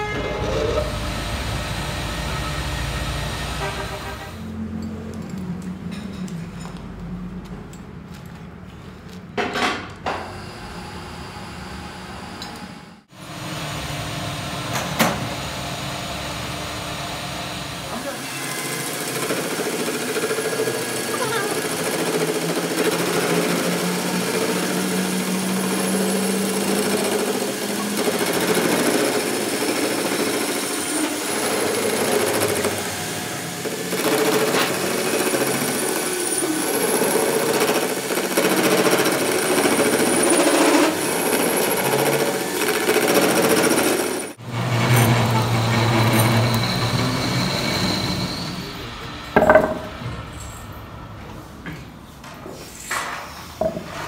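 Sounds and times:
metal lathe cutting: 0.0s - 4.4s, 15.4s - 49.8s.

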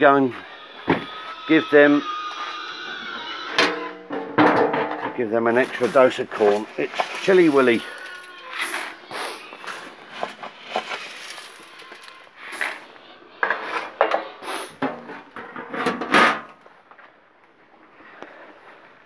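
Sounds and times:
grain rattling: 10.6s - 12.8s.

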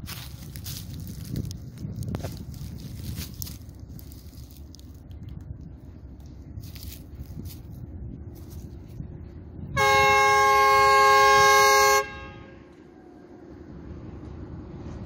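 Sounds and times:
low rumble: 0.0s - 15.0s
locomotive horn blast: 9.8s - 12.8s.

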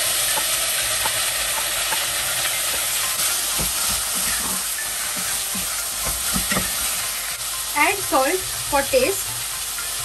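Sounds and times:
oil sizzling in a pot: 0.0s - 10.0s
spatula knocking against pot: 0.3s - 4.6s
wooden spatula stirring: 2.7s - 6.9s.

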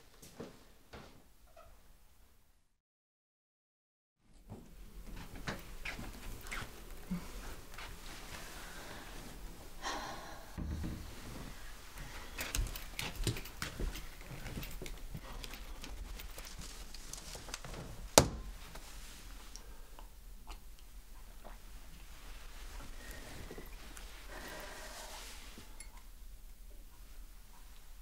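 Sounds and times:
faint rustles: 10.7s - 19.6s.

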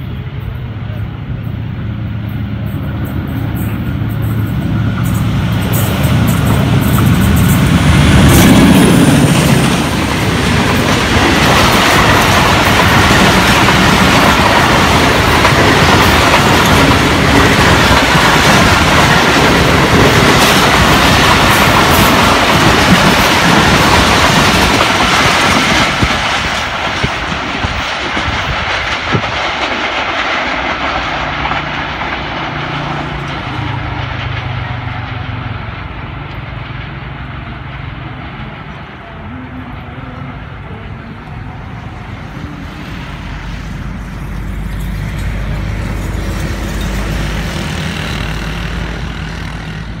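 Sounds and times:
train coaches rushing past: 0.0s - 50.0s
wheels clacking over rail joints: 2.8s - 39.8s.

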